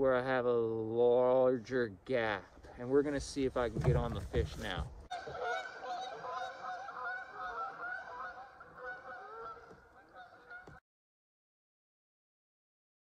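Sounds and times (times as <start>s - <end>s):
geese honking: 5.1s - 10.8s.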